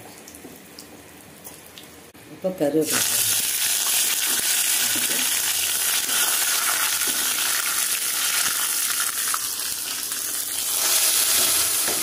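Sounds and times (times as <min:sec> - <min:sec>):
spices sizzling in hot fat: 0:02.8 - 0:12.0.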